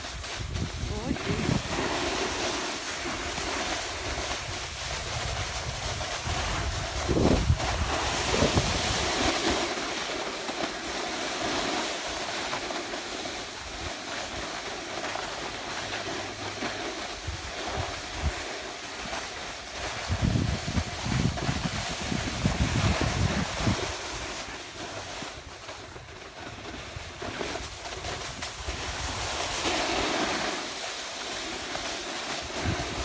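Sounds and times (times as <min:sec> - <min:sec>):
hiss of sliding across snow: 0:00.0 - 0:33.0
wind buffeting microphone: 0:00.2 - 0:01.9, 0:04.0 - 0:09.3, 0:19.9 - 0:24.0.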